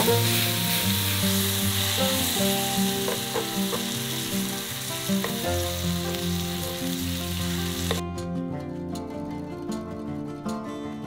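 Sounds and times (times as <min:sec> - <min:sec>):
meat sizzling in a frying pan: 0:00.0 - 0:08.0
soft background music: 0:00.0 - 0:11.0
chopsticks tapping pan: 0:01.9 - 0:06.2, 0:07.8 - 0:08.0.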